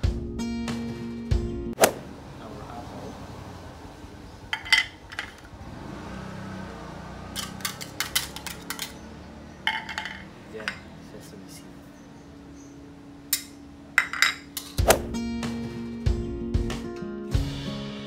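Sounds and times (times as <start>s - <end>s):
small dishes clinking: 4.5s - 5.6s, 7.3s - 11.1s, 13.3s - 14.8s.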